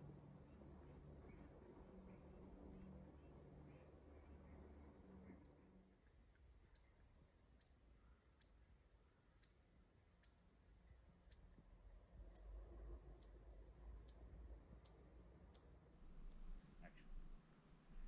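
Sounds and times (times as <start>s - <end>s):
faint high sharp clicks: 5.4s - 8.6s, 9.4s - 10.5s, 11.2s - 12.6s, 14.0s - 16.5s.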